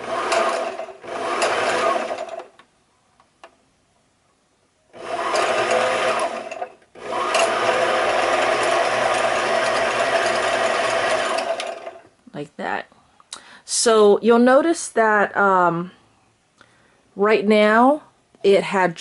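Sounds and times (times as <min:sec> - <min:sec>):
sewing machine motor whirring: 0:00.0 - 0:02.5, 0:04.9 - 0:12.1.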